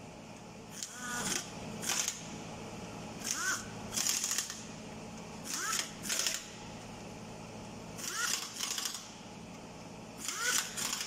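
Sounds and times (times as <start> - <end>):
air motor rising whine: 0.6 - 6.8
pneumatic impact wrench bursts: 0.7 - 2.3, 3.2 - 4.7, 5.4 - 6.6, 8.0 - 9.2, 10.2 - 11.0.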